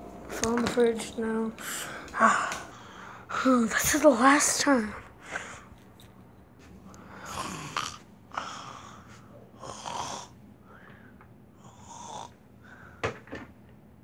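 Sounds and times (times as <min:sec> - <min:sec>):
person snoring: 0:07.0 - 0:10.4, 0:11.6 - 0:12.4.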